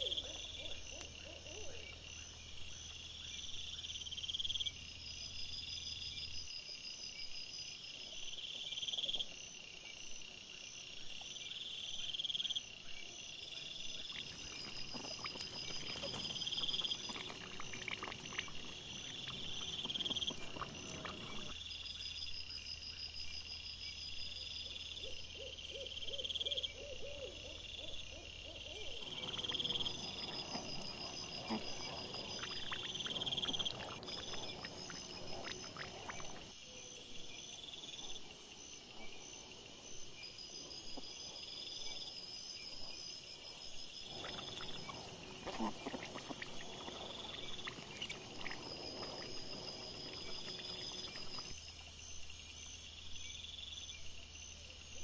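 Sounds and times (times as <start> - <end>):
insects chirping in pulses: 0.0 - 55.0
wild boar rustling and crunching: 14.2 - 21.3.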